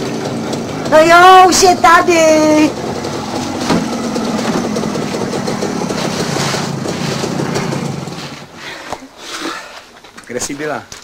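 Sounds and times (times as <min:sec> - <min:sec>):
two-stroke motorcycle engine: 0:00.0 - 0:08.6.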